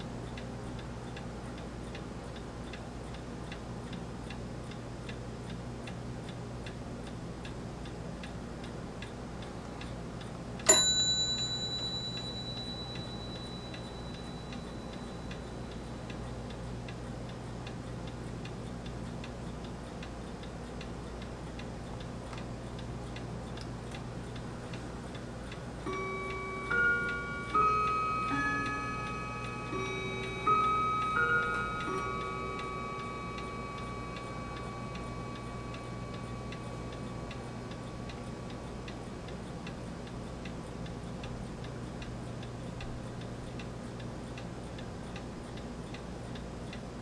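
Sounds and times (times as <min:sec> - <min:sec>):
bright ping: 0:10.7 - 0:15.4
steady ticking: 0:10.9 - 0:46.9
low hum: 0:24.6 - 0:39.4.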